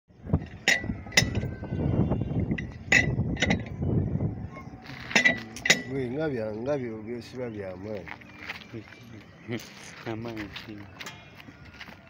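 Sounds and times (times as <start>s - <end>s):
metallic clinks of spanner: 0.4s - 1.5s, 2.6s - 3.7s, 5.1s - 6.1s
metal scraping: 4.6s - 6.8s.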